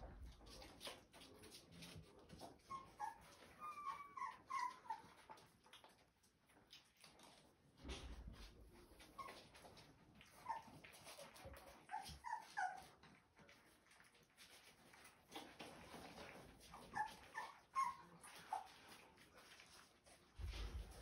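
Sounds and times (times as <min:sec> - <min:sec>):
puppies whimpering: 0:02.4 - 0:05.6, 0:08.9 - 0:13.6, 0:15.3 - 0:19.6.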